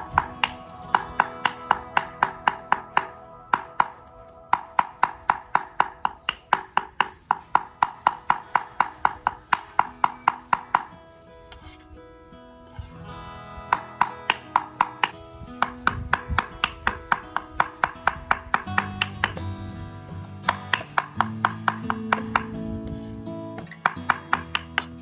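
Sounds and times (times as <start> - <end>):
guitar music: 0.0 - 25.0
cleaver chopping on wooden block: 4.6 - 10.9, 13.7 - 19.4, 20.5 - 22.5, 23.6 - 25.0.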